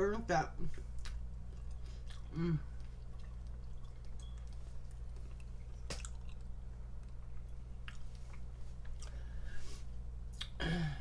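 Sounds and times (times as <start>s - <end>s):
low electrical hum: 0.0s - 11.0s
wet mouth clicks chewing: 1.0s - 9.2s
person humming: 2.3s - 2.8s, 10.4s - 11.0s.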